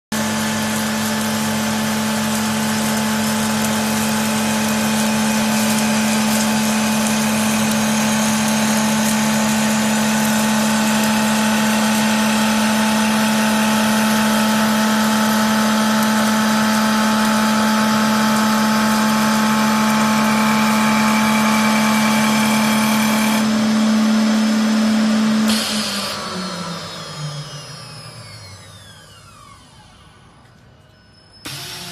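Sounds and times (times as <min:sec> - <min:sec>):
wood lathe cutting wood: 0:00.2 - 0:25.6.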